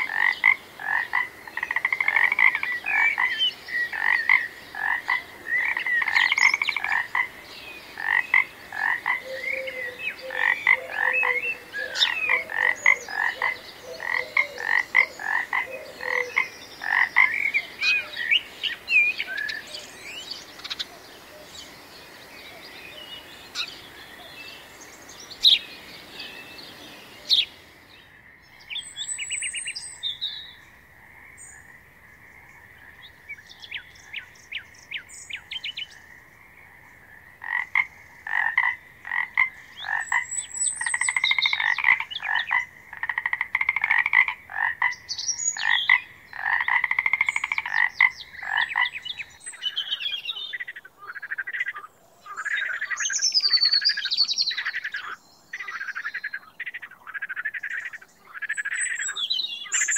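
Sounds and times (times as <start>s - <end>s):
frogs croaking in chorus: 0.0s - 59.9s.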